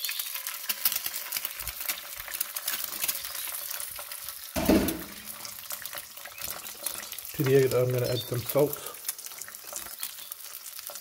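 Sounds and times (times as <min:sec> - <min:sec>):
egg sizzling in oil: 0:00.0 - 0:11.0
short loud bump: 0:04.6 - 0:05.2.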